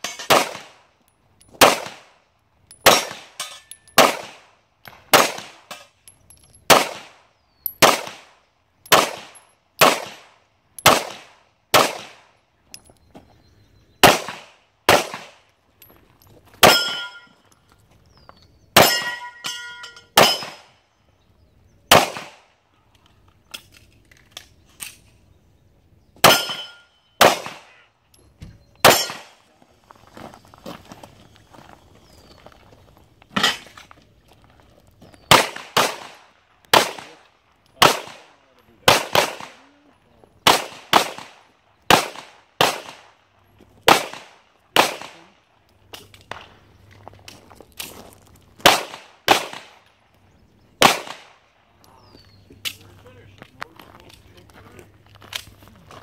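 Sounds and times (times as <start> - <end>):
metallic clang on steel targets: 0.0 - 0.7, 2.7 - 4.3, 5.6 - 6.8, 16.6 - 17.5, 18.8 - 20.7, 26.2 - 27.6, 28.2 - 29.5, 33.4 - 33.8
handgun shots: 0.0 - 0.8, 2.8 - 4.4, 8.9 - 10.2, 28.8 - 29.4.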